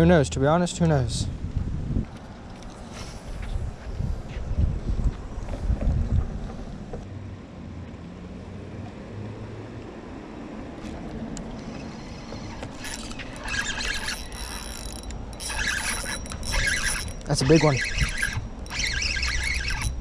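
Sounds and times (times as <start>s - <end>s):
wind: 0.0s - 20.0s
fishing reel whirring: 11.6s - 20.0s.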